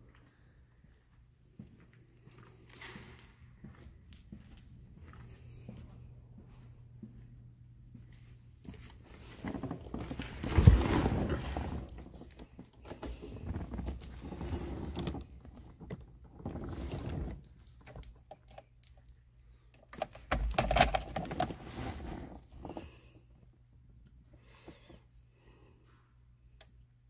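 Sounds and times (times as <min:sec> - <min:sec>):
keys jangling and knocking: 0:01.6 - 0:05.7, 0:09.4 - 0:24.8.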